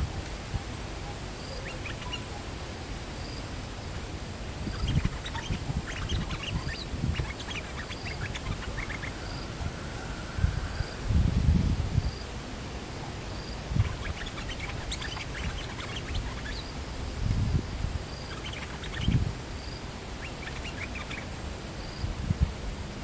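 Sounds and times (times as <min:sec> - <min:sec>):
bird chattering calls: 0:01.4 - 0:02.5, 0:04.6 - 0:09.5, 0:13.5 - 0:16.7, 0:18.1 - 0:22.0.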